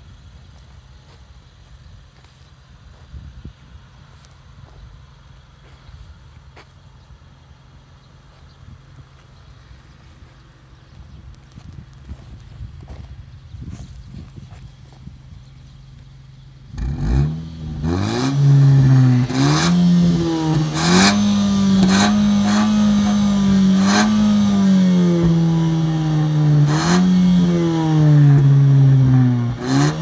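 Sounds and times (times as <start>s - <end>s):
car engine throttle blips: 15.6s - 30.0s
sharp rush of exhaust noise: 16.8s - 30.0s.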